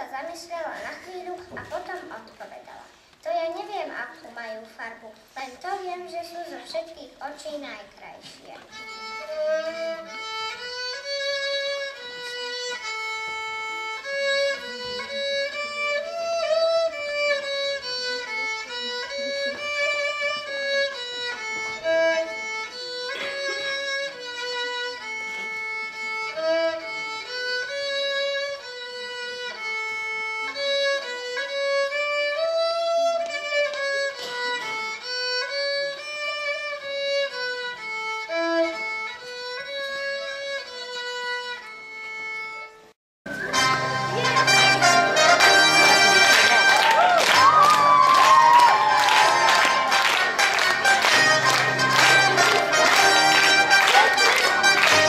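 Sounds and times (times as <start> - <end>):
child playing violin tune: 8.5 - 46.8, 49.4 - 55.0.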